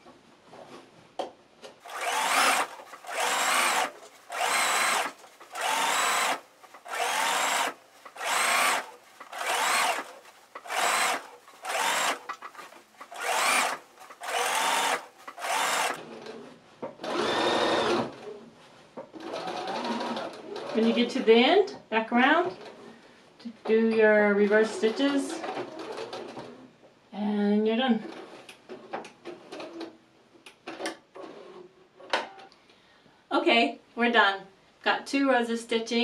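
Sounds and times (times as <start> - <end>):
sewing machine motor whine: 1.8 - 16.0, 17.1 - 18.0.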